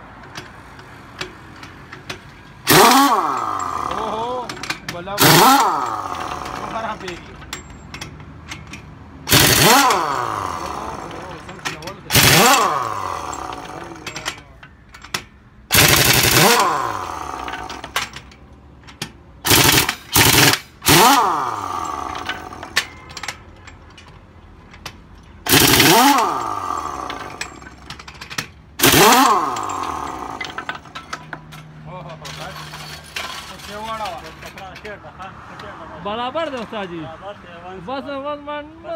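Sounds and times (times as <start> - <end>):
pneumatic impact wrench hammering: 0.3 - 23.9, 24.8 - 31.7
tool motor winding down: 2.7 - 4.5, 5.2 - 7.0, 9.3 - 11.5, 12.1 - 14.2, 15.7 - 18.0, 19.5 - 22.8, 25.5 - 27.8, 28.8 - 30.9.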